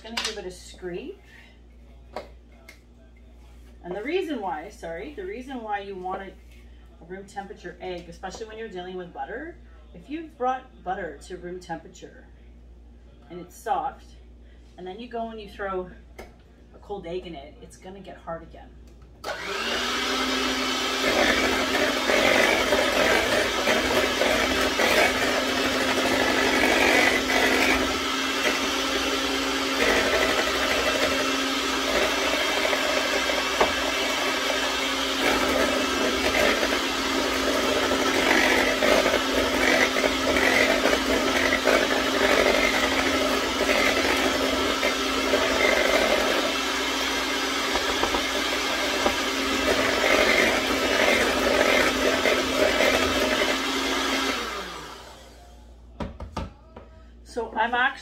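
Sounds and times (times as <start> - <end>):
electric mixer whirring: 19.2 - 55.5.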